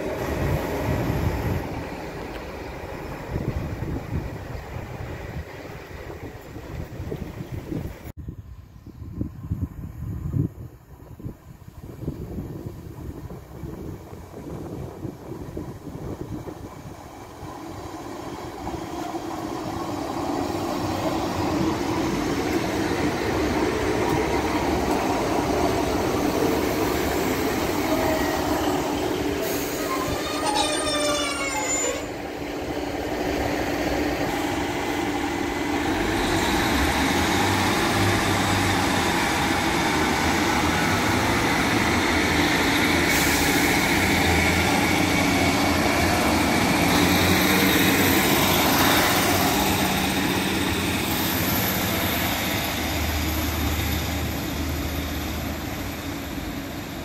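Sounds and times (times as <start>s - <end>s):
diesel train engines humming: 0.0s - 57.0s
brake squeal: 29.4s - 32.2s.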